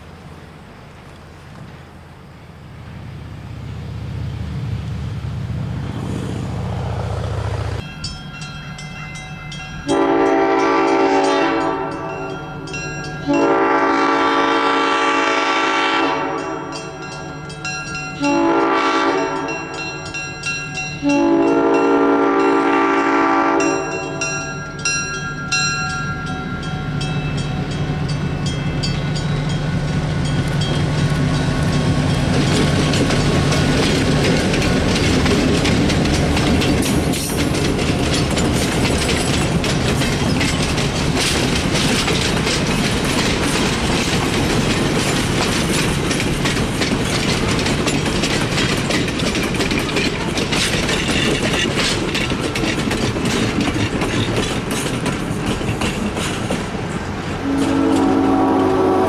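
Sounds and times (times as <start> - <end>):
train rumble and wheel clatter: 0.0 - 59.0
crossing signal bells ringing: 7.8 - 14.4, 16.2 - 35.2
locomotive horn blasts: 9.8 - 12.3, 13.2 - 17.0, 18.2 - 19.8, 21.0 - 24.4, 57.4 - 59.0.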